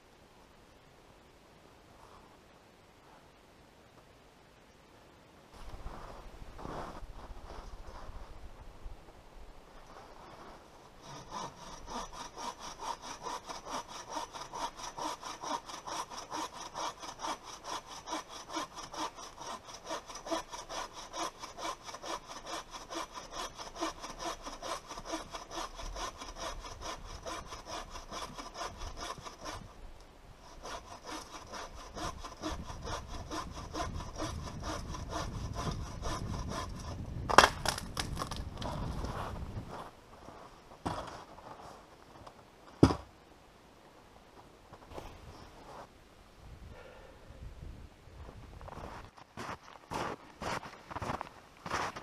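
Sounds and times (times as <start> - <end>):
bow saw cutting log: 11.0 - 29.8, 30.4 - 38.4.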